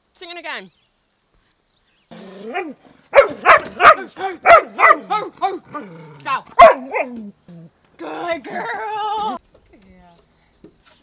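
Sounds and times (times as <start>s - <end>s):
dog barking: 2.5s - 5.2s, 6.5s - 7.2s.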